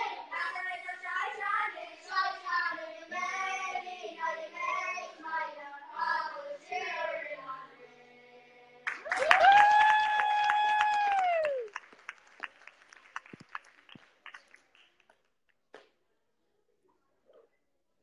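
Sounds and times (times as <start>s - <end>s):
boys' choir singing: 0.0s - 9.0s
people clapping: 8.8s - 16.0s
person cheering woo: 9.0s - 11.8s.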